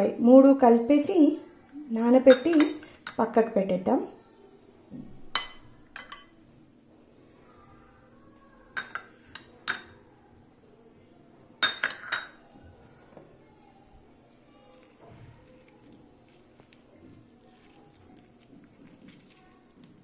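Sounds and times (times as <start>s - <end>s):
plastic spoon clinking glass bowls: 2.3s - 3.3s.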